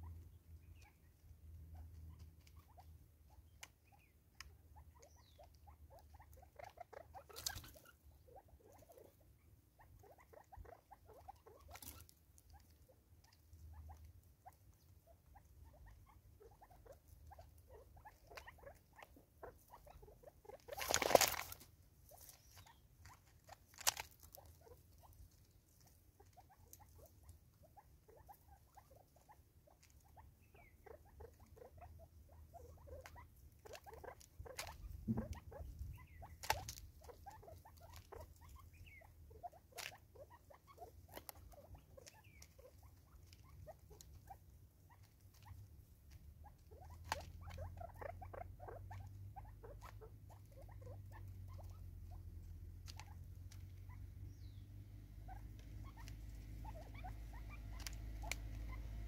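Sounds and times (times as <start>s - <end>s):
loud rustling scramble: 20.5s - 26.0s
birds pecking on wood: 20.5s - 27.3s, 55.0s - 59.0s.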